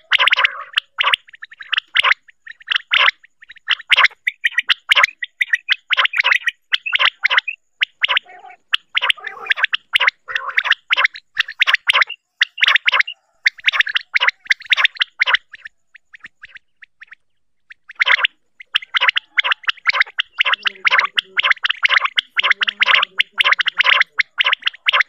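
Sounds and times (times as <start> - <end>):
quail calling: 0.0 - 25.0.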